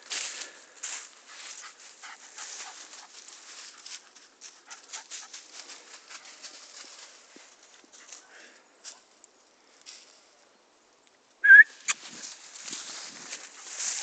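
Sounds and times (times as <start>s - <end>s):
footsteps crunching dry leaves: 0.0s - 9.0s, 11.8s - 14.0s
dog running through leaves: 1.0s - 8.3s, 12.0s - 14.0s.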